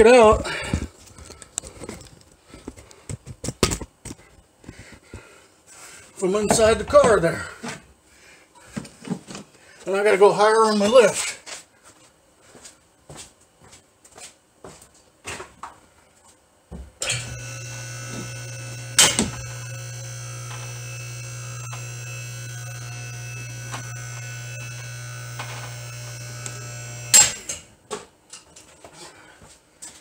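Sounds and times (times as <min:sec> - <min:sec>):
car lift motor humming: 0:17.0 - 0:27.6.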